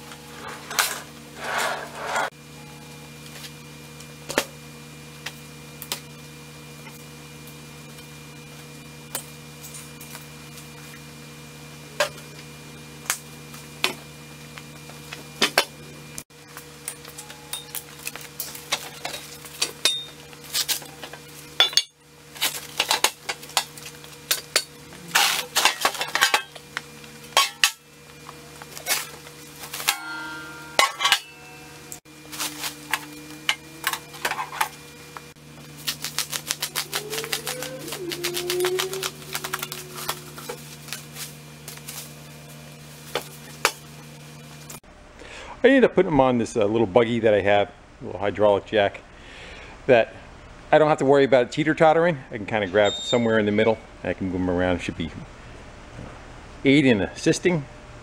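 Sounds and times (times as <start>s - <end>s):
plastic wrap crinkling and tearing: 35.8s - 42.2s.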